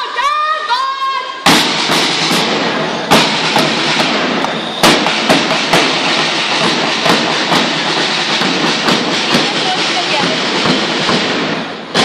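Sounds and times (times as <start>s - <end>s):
snare drums beating a march: 1.4s - 12.0s
heavy bass drum strokes: 1.5s - 12.0s.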